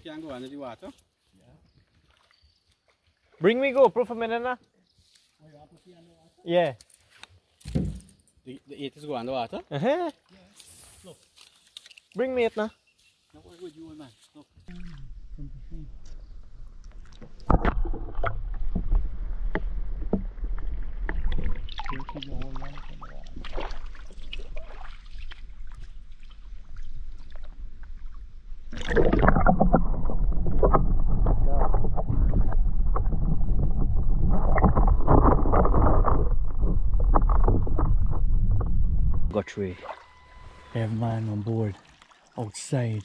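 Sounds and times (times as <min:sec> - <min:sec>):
camera knocks and clunks: 0:07.6 - 0:08.2
wind rumbling on microphone: 0:23.2 - 0:39.4.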